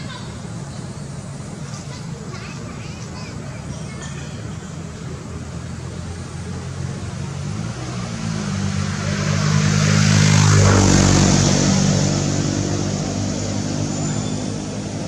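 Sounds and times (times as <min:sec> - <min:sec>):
motor vehicle driving past: 0:05.6 - 0:15.0.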